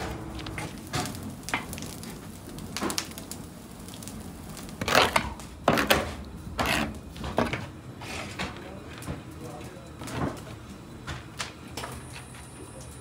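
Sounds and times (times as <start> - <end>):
gritty scrapes and crunches: 4.6 - 8.7.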